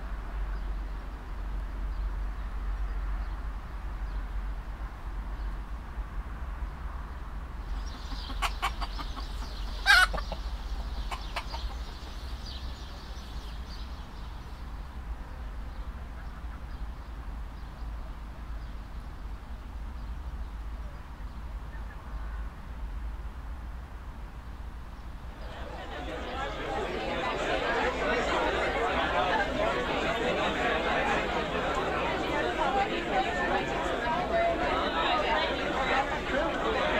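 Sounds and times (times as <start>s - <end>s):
chickens clucking and squawking: 7.7s - 13.0s.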